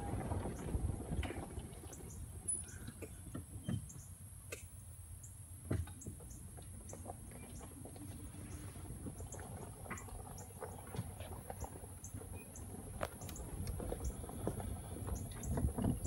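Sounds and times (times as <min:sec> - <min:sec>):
low wind rumble: 0:00.0 - 0:04.4, 0:06.4 - 0:16.0.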